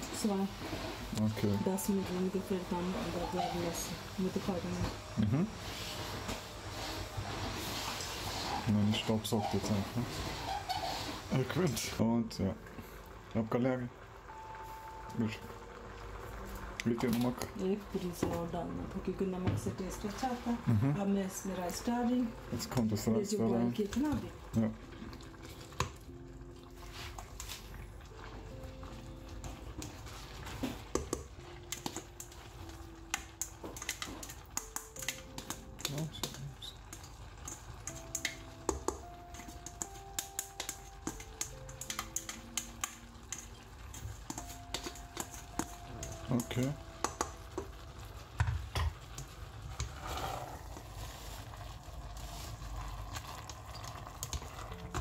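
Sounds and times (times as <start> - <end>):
spatula scraping rice from colander: 5.7 - 11.3
spatula and colander tapping pot: 29.4 - 49.9.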